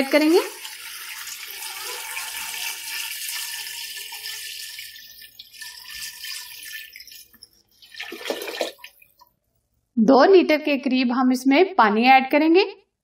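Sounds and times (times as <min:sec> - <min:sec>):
water pouring into metal pot: 0:00.0 - 0:09.2.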